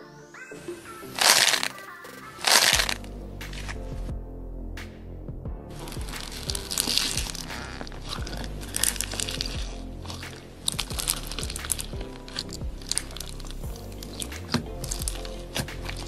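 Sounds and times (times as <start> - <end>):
background music: 0.0 - 16.0
slime beads crunching: 1.1 - 1.8, 2.4 - 3.8, 5.8 - 16.0.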